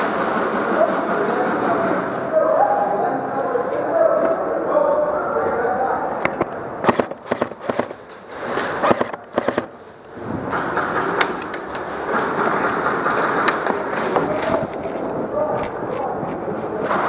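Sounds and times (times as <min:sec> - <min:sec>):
rushing background noise: 0:03.6 - 0:17.0.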